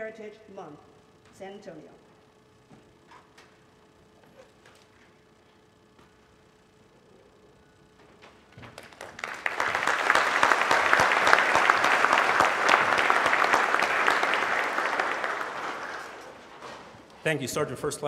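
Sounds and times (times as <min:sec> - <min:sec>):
audience applauding: 0:08.8 - 0:16.9.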